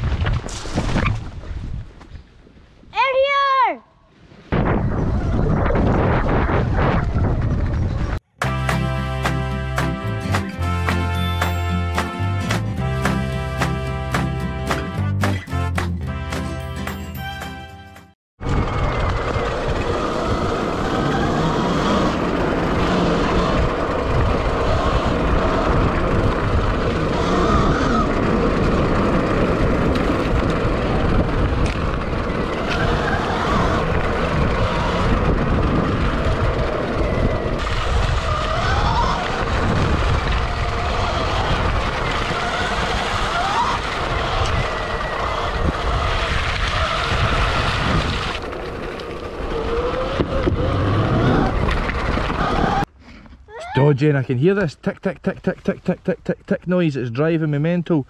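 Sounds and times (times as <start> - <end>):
electric dirt bike motor whine: 18.4 - 52.9
heavy uneven rumble: 18.4 - 53.4.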